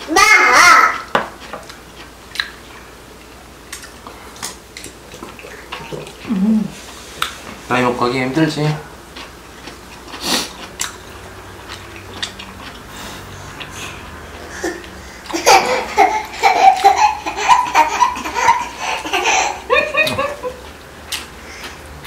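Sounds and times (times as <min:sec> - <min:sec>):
high-pitched laughter: 0:14.6 - 0:20.6.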